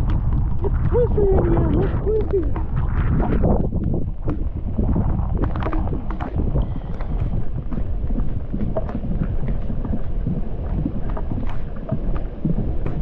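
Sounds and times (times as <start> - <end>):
raindrops tapping on camera: 0.0 - 13.0
wind noise on microphone: 0.0 - 13.0.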